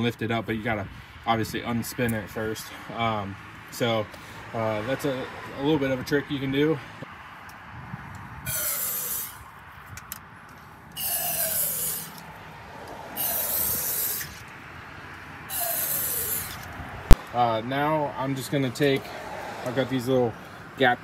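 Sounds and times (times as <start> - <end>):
aerosol can spraying: 8.5 - 9.4, 11.0 - 12.2, 13.2 - 14.4, 15.5 - 16.6.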